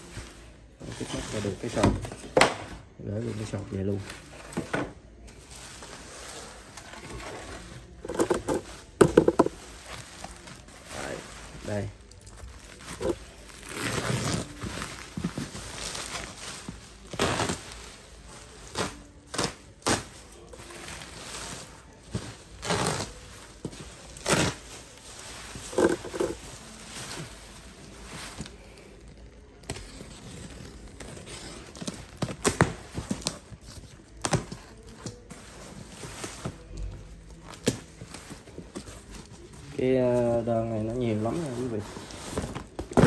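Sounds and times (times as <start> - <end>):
bubble wrap crinkling: 5.2 - 43.0.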